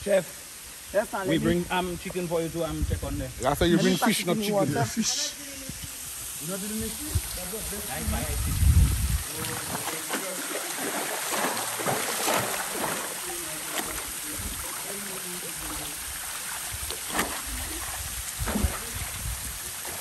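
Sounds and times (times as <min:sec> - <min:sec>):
stream rushing: 0:03.8 - 0:20.0
water splashing and sloshing: 0:08.9 - 0:20.0.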